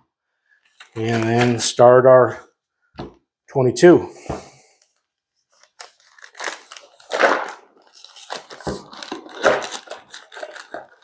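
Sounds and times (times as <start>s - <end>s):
plastic bag crinkling: 0.7s - 1.6s, 5.6s - 11.0s.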